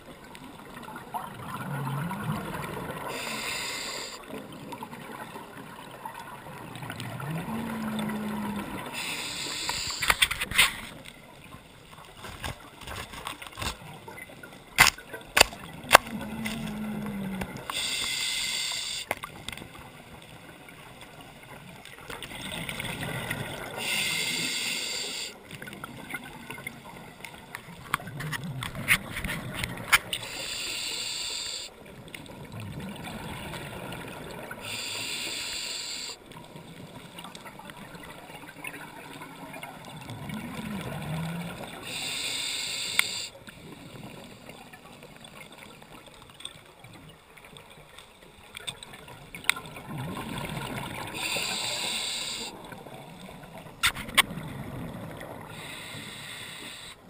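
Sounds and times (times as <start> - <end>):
exhaled bubbles underwater: 0.0 - 10.0, 15.6 - 18.0, 19.3 - 24.6, 31.8 - 35.0, 36.2 - 42.2, 48.8 - 55.9
regulator inhalation: 3.1 - 4.2, 9.0 - 10.2, 17.7 - 19.1, 23.8 - 25.4, 30.2 - 31.7, 34.6 - 36.2, 41.9 - 43.3, 51.2 - 52.6, 55.6 - 57.0.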